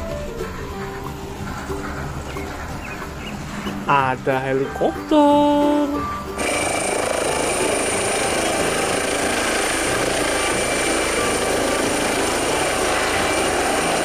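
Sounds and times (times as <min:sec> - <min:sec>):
helicopter rotor and engine: 0:06.2 - 0:14.0.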